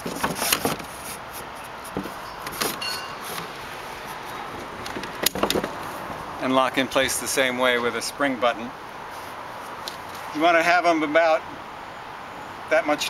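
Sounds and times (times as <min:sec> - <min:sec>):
metal knocks and clicks: 0:04.8 - 0:05.8.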